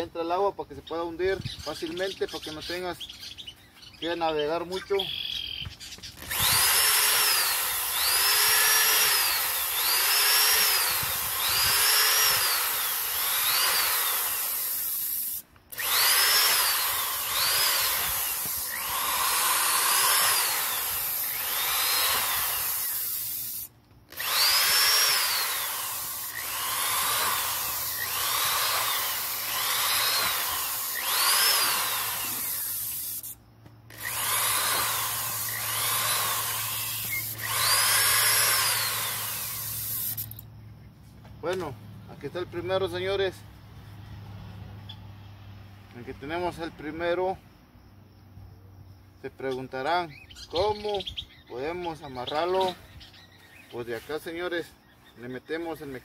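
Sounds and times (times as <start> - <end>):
electric drill whining: 6.1 - 33.3, 33.9 - 40.4.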